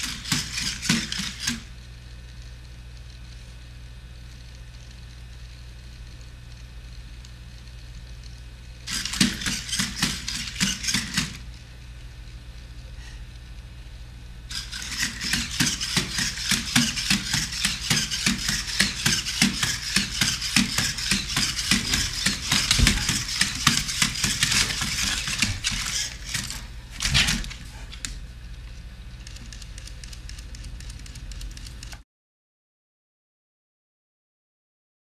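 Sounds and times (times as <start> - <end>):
feet tapping on hardwood floor: 20.6 - 24.8.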